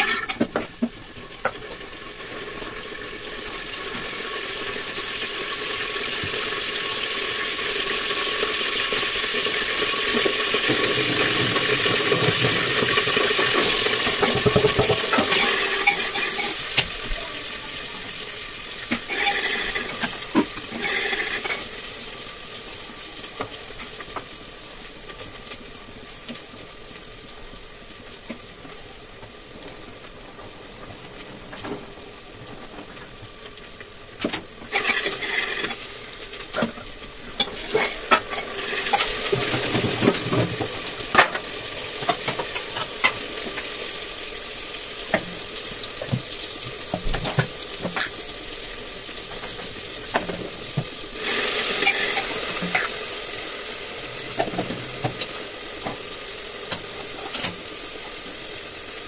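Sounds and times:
metal pots and utensils clinking: 0.0s - 1.7s, 10.0s - 17.0s, 18.8s - 21.7s, 34.2s - 35.8s, 36.5s - 43.6s, 49.4s - 53.0s, 56.7s - 57.7s
cookware hissing on stove: 0.0s - 59.0s.

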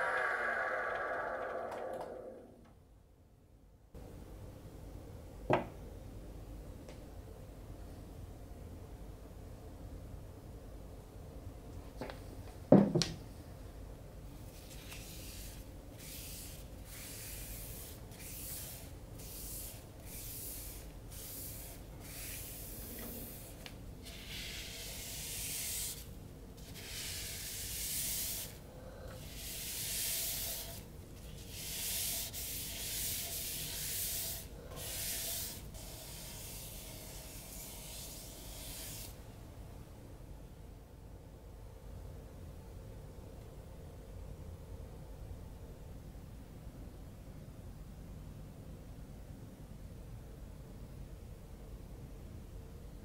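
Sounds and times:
paper towel wiping spinning bowl: 29.3s - 39.2s.

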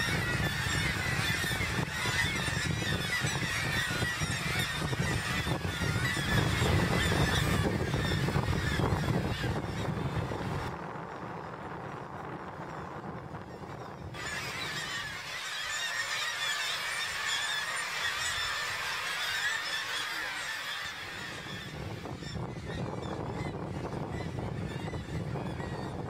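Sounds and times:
seabird colony calling: 0.0s - 10.7s, 14.2s - 26.0s.

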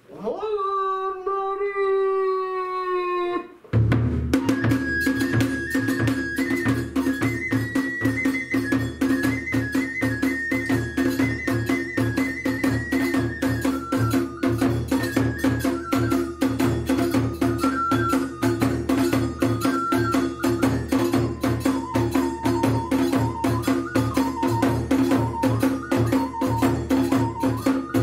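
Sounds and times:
fast dense drumming: 3.8s - 7.5s
high bamboo flute melody: 4.3s - 28.0s
hand cymbal strokes: 4.4s - 28.0s.

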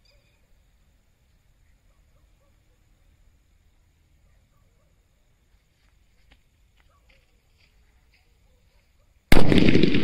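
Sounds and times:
faint high chirps: 0.0s - 3.1s.

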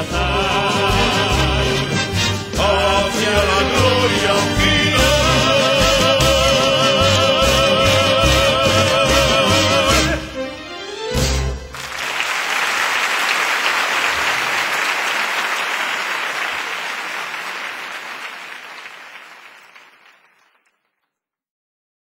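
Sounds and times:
crowd applauding: 11.7s - 21.0s.

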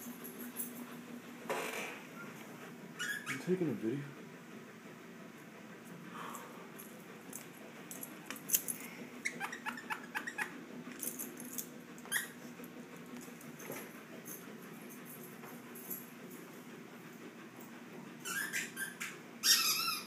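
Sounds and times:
squeaky dog toy: 3.0s - 3.5s, 9.2s - 10.5s, 12.1s - 12.4s, 18.2s - 20.0s.

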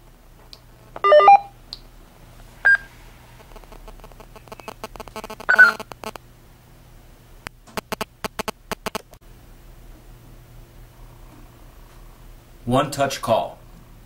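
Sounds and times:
radio stepped beeps: 1.0s - 1.5s, 2.7s - 2.9s, 4.4s - 6.2s
short beep: 1.0s - 1.5s, 2.7s - 2.9s
patter of clicks: 3.4s - 6.2s, 7.7s - 9.2s
burst of electronic tones: 3.5s - 6.2s, 7.8s - 9.1s.

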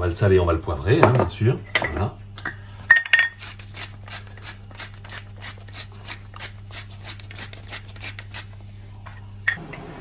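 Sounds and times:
pepper mill grinding: 3.1s - 8.6s.

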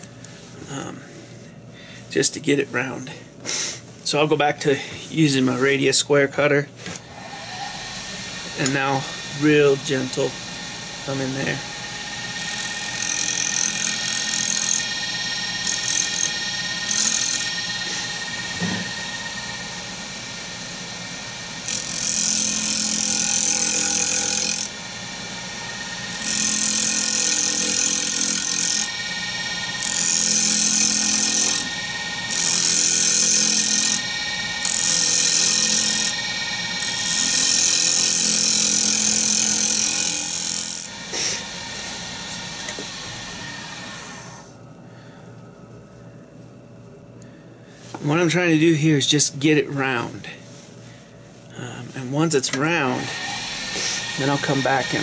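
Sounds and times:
cutter scraping spinning wood: 7.0s - 44.5s, 52.0s - 55.0s
wood lathe whining: 7.0s - 44.7s, 52.0s - 55.0s.

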